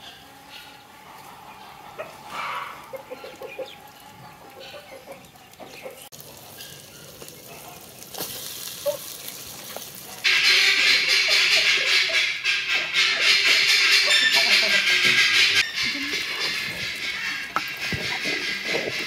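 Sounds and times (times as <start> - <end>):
hens clucking: 0.0 - 19.0
food sizzling in hot oil: 6.1 - 11.3.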